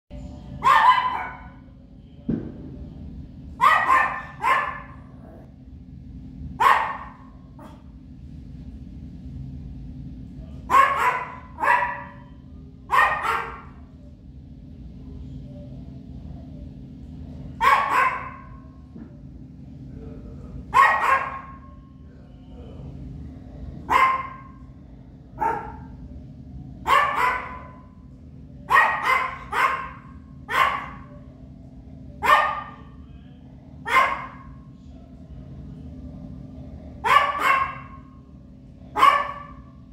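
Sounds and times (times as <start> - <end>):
steady low hum: 0.1 - 39.9
small dog barking: 0.6 - 1.6, 3.6 - 5.0, 6.6 - 7.8, 10.7 - 12.3, 12.9 - 13.8, 17.6 - 18.6, 20.7 - 21.7, 23.9 - 24.6, 25.4 - 25.9, 26.8 - 27.9, 28.7 - 31.1, 32.2 - 33.0, 33.9 - 34.6, 37.0 - 38.1, 38.9 - 39.7.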